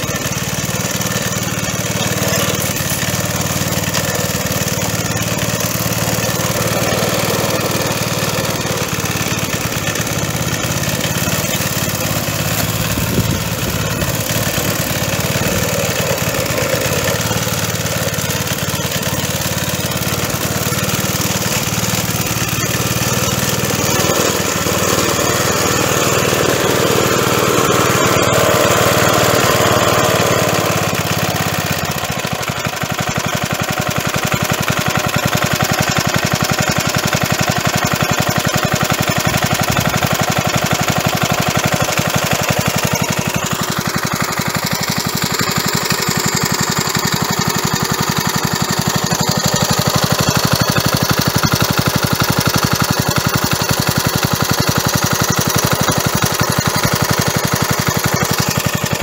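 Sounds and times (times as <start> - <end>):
lawn mower engine running: 0.0 - 59.0.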